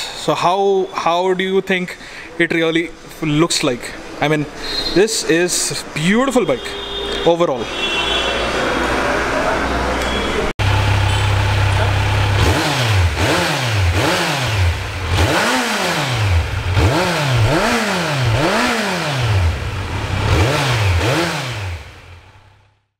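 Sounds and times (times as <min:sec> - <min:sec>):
motorcycle engine idling and revving: 0:10.6 - 0:22.9.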